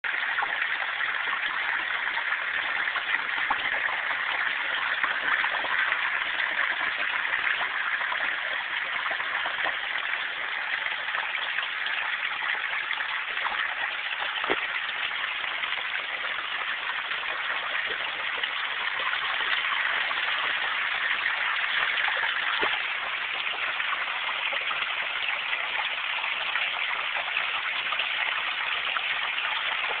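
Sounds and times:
floodwater rushing: 0:12.8 - 0:30.0.

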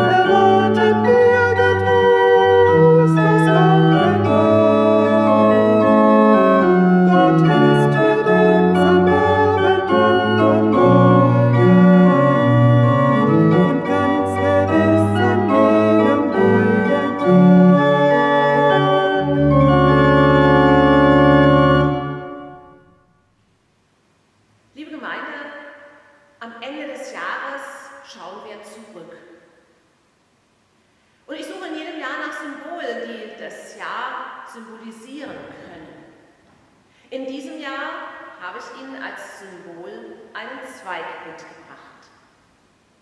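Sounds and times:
pipe organ playing a hymn: 0:00.0 - 0:22.8.

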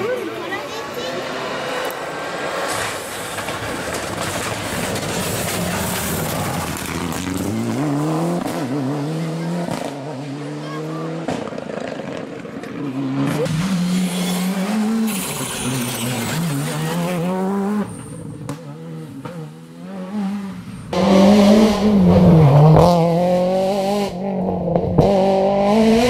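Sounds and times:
rally car engines revving past: 0:00.0 - 0:26.0.

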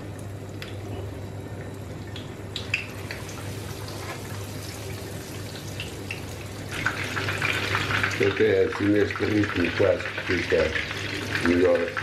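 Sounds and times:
fish frying in hot oil: 0:02.6 - 0:12.0.

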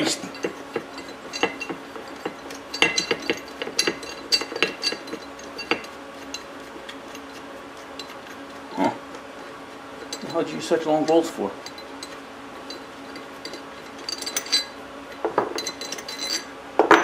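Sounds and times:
bolts clinking on metal plate: 0:00.2 - 0:05.9, 0:11.0 - 0:17.0.

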